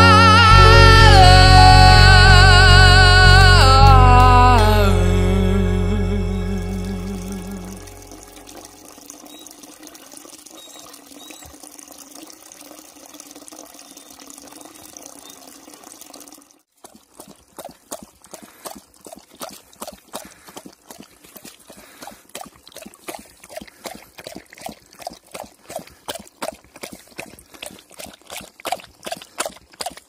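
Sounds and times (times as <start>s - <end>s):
water trickling into basin: 6.5s - 30.0s
dog lapping water: 8.0s - 30.0s.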